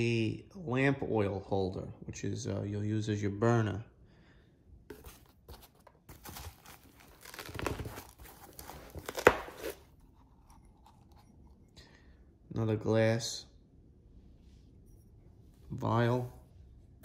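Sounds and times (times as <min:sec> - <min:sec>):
packing paper crinkling: 0:05.0 - 0:09.9.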